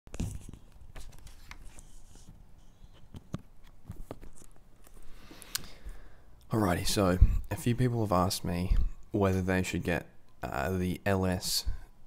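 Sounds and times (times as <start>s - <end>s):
microphone handling clicks and rubbing: 2.9s - 5.6s.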